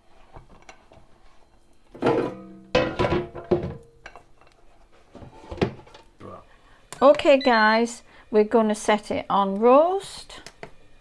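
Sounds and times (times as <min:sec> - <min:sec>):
metal dishes clanking in drawers: 0:02.0 - 0:04.4.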